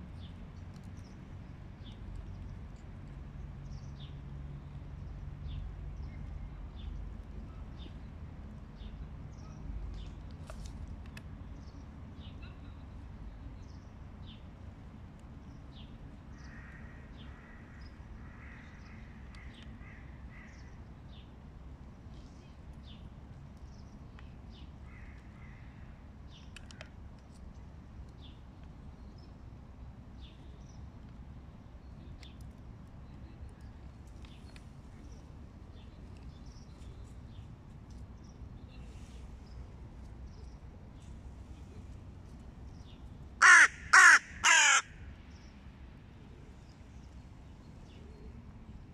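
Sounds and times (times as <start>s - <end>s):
crow cawing: 43.4s - 45.0s.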